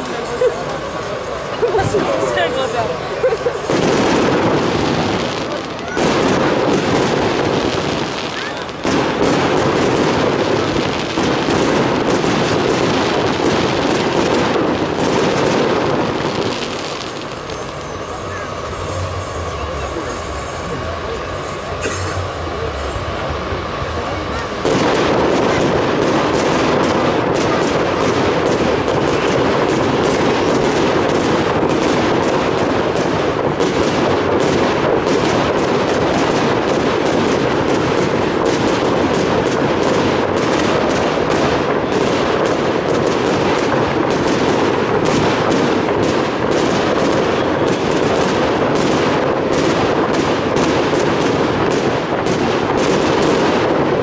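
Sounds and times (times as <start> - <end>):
fireworks bangs and crackles: 0.0 - 54.0.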